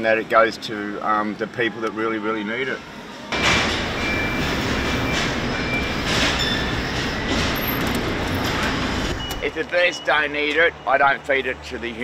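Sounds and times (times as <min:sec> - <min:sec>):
short high squeaks: 0:04.0 - 0:09.6.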